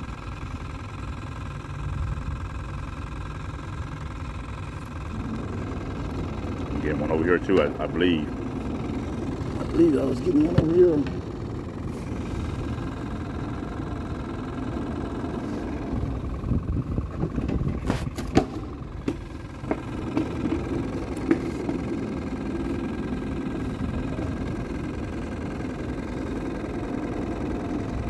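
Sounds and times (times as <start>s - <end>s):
low engine-like drone: 0.0s - 28.0s
sharp knocks and handling clatter: 8.8s - 12.3s, 17.1s - 22.1s.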